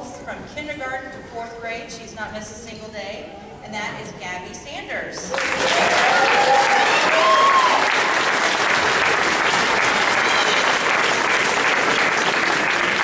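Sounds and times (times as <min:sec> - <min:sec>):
audience applause: 0:05.3 - 0:13.0.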